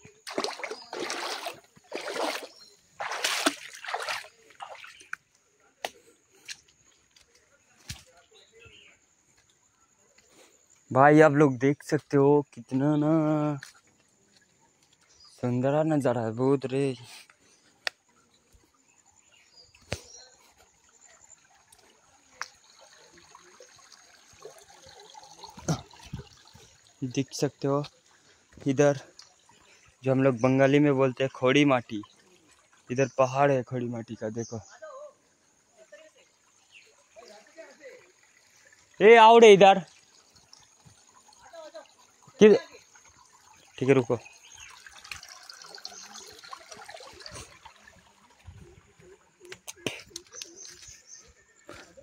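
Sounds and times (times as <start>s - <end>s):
stream water splashing: 0.0s - 10.8s, 11.8s - 52.0s.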